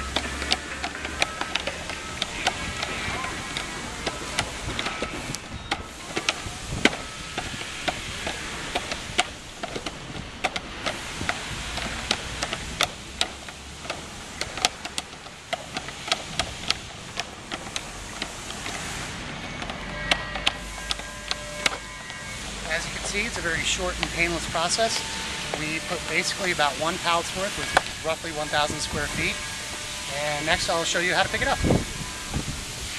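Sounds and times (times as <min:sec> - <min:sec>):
plastic panels clicking and clacking: 0:00.0 - 0:21.8
background hiss: 0:00.0 - 0:32.9.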